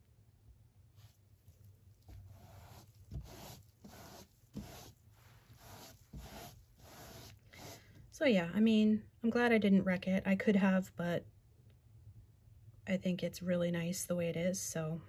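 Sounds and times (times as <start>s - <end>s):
soft rubbing swishes: 0.9s - 7.9s.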